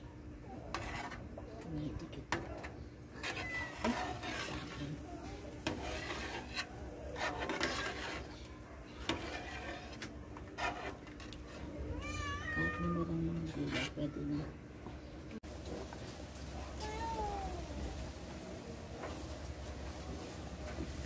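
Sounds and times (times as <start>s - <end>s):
rubbing and scraping: 0.7s - 1.4s, 2.3s - 11.8s
cat meowing: 11.9s - 13.1s.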